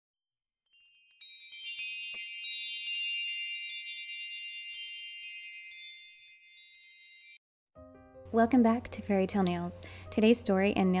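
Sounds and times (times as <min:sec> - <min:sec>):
quick glittering tinkles: 0:00.7 - 0:07.4
sparkly high chime tones: 0:00.7 - 0:07.4.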